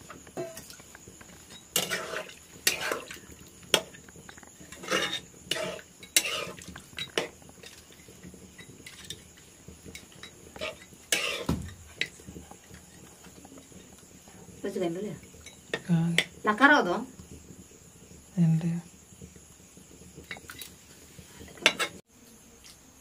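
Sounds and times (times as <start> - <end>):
metal spatula scraping a pot: 1.4 - 14.0, 21.4 - 22.0.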